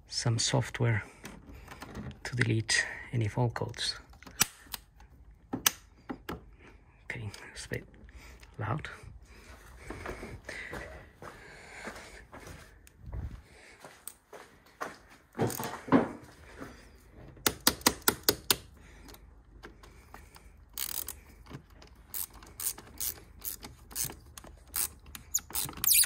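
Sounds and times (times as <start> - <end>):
ratchet wrench clicking: 20.7 - 21.2, 22.1 - 26.0.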